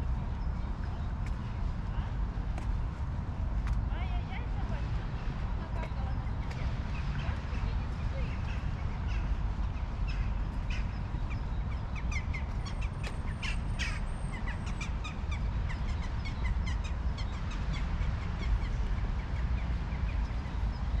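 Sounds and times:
low outdoor rumble: 0:00.0 - 0:21.0
birds calling: 0:05.7 - 0:21.0.

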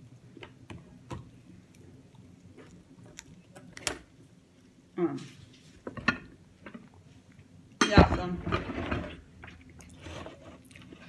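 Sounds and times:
dishes clattering: 0:05.9 - 0:06.8.

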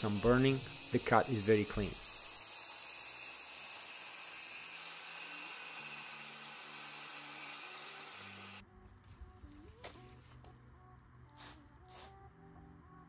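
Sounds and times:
circular saw cutting wood: 0:00.0 - 0:08.6.

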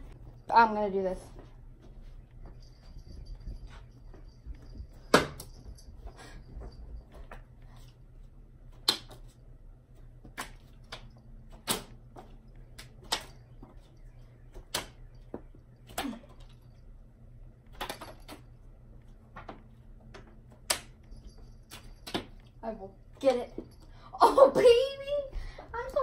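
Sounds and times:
playing cards snapping and slapping: 0:08.7 - 0:09.4, 0:10.2 - 0:12.0, 0:12.7 - 0:13.3, 0:20.6 - 0:20.9.

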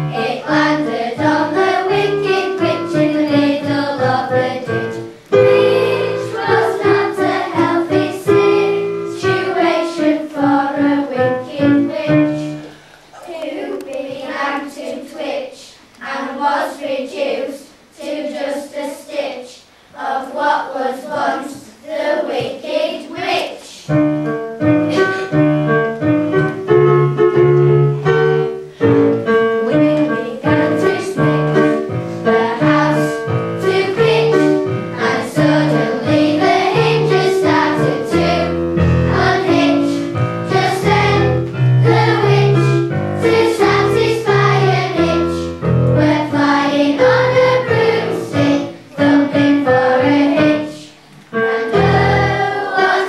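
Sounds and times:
instrumental accompaniment: 0:00.0 - 0:13.2, 0:23.9 - 0:53.0
children's choir singing: 0:00.0 - 0:53.0.

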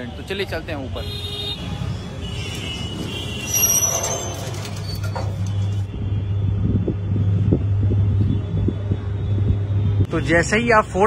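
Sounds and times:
lift gate metallic clatter: 0:03.6 - 0:05.8.

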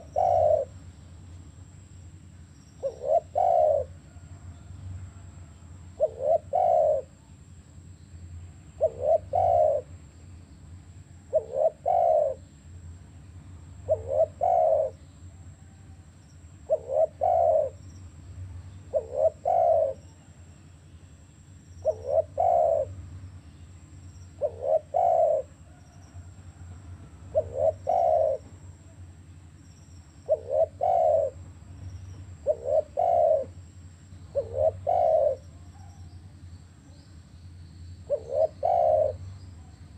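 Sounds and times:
dove cooing: 0:00.0 - 0:00.9, 0:02.8 - 0:05.3, 0:05.9 - 0:07.2, 0:08.8 - 0:10.0, 0:11.2 - 0:12.4, 0:13.8 - 0:16.0, 0:16.6 - 0:17.9, 0:18.9 - 0:20.4, 0:21.8 - 0:23.0, 0:24.2 - 0:29.0, 0:30.2 - 0:36.3, 0:38.0 - 0:39.7.

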